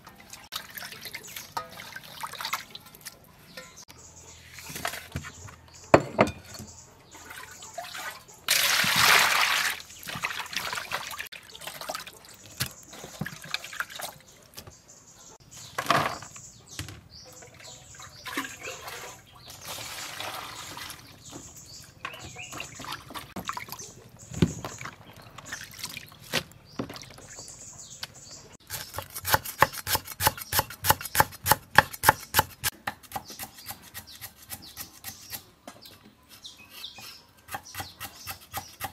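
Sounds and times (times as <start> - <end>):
water splashing into bowls: 0.0 - 3.3, 7.2 - 14.3, 17.4 - 21.5, 22.1 - 24.0, 24.6 - 27.5
cleaver chopping on wooden board: 28.7 - 33.8.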